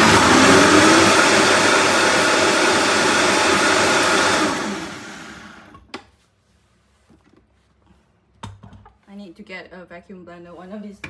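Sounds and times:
blender motor winding down: 0:00.0 - 0:05.8
blender running: 0:00.0 - 0:05.8.

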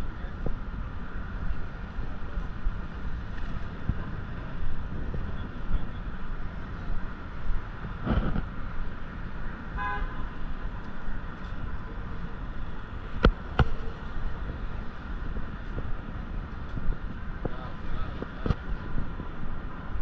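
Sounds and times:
city street traffic rumble: 0:00.0 - 0:20.0
vehicle horn honk: 0:09.8 - 0:10.3.

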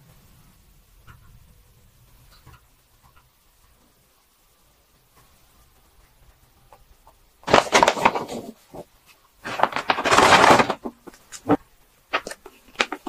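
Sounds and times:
paper bag rustling and crinkling: 0:07.4 - 0:13.0.

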